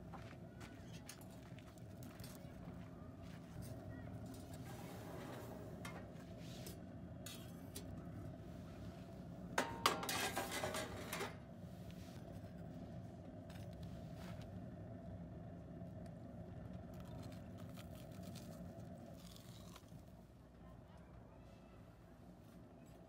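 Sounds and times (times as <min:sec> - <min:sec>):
metal rack clattering and scraping: 0:04.3 - 0:08.0, 0:09.6 - 0:11.4.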